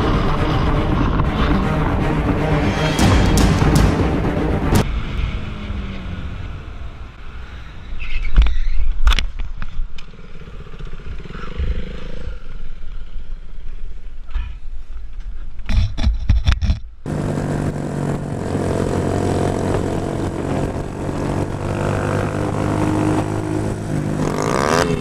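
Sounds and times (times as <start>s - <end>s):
low rumble: 0.0s - 14.6s
road noise: 0.0s - 25.0s
motorcycle engine running: 17.1s - 25.0s
wind noise: 17.7s - 24.2s.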